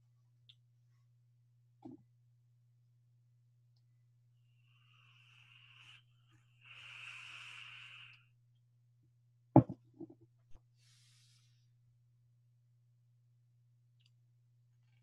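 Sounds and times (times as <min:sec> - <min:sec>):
soft breathy hisses: 0:04.6 - 0:08.3, 0:10.8 - 0:11.6.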